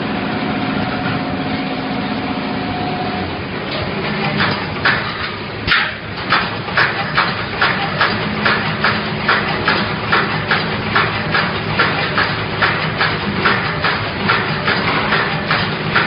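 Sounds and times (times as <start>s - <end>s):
steady low machine hum: 0.0s - 16.0s
welding heads clacking: 3.7s - 16.0s.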